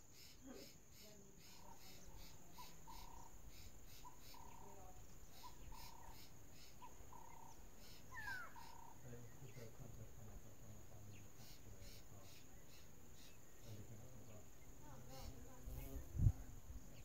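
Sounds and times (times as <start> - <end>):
insect chorus chirping: 0.0 - 17.0.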